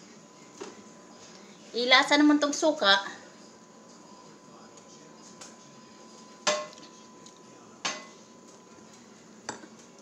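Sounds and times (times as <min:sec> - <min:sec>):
kitchenware clinking: 0:06.4 - 0:06.9, 0:07.8 - 0:08.6, 0:09.4 - 0:09.9.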